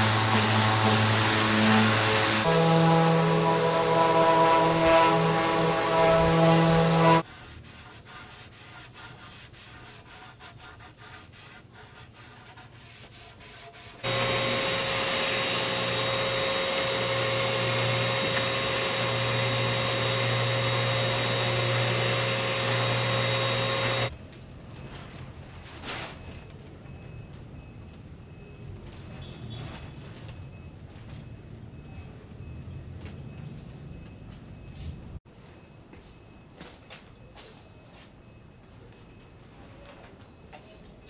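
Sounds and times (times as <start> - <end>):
orbital sander whining: 0.0 - 7.2, 14.0 - 24.1.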